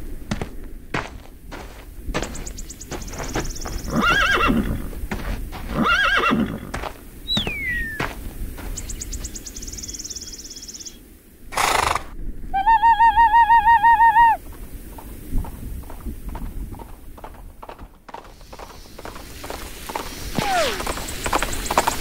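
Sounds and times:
horse whinnying: 0:03.9 - 0:04.9, 0:05.7 - 0:06.7.

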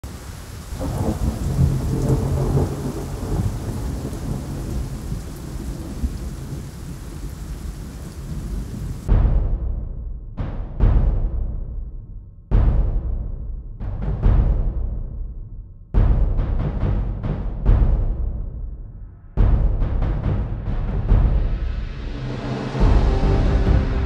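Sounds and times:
rain hiss: 0:00.0 - 0:09.1, 0:21.5 - 0:24.0
low thunder rumble: 0:00.0 - 0:09.2, 0:19.4 - 0:24.0
heavy drum hits: 0:09.1 - 0:11.9, 0:12.5 - 0:15.1, 0:16.0 - 0:24.0.

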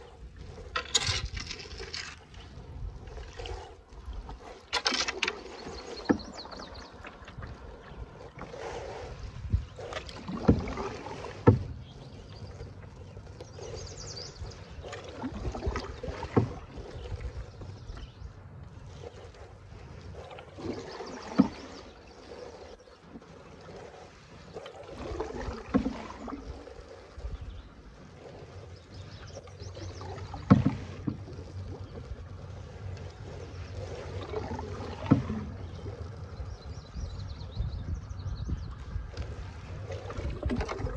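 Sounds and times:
paddle strokes: 0:00.0 - 0:40.9
water lapping at hull: 0:00.0 - 0:40.9
wind on microphone: 0:05.4 - 0:12.4, 0:24.7 - 0:40.9.

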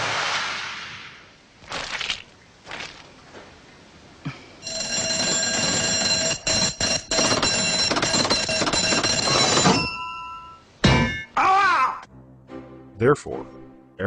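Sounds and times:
electric alarm bell ringing: 0:04.6 - 0:10.7.

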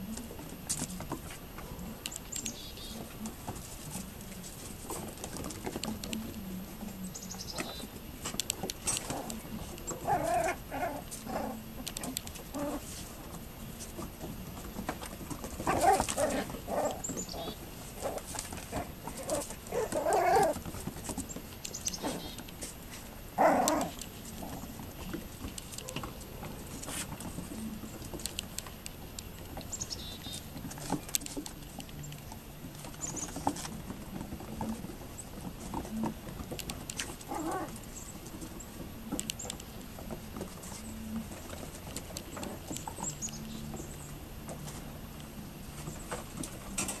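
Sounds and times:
puppy cries: 0:19.2 - 0:20.6.

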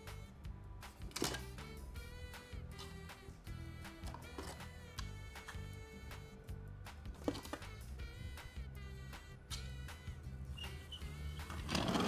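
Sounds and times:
background music: 0:00.0 - 0:12.0.

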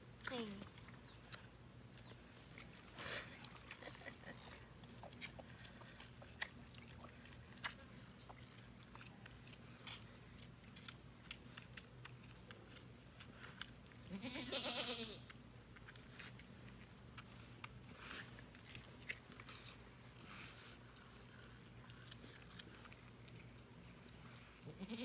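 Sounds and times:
goat bleating: 0:14.1 - 0:15.2, 0:24.6 - 0:25.0.

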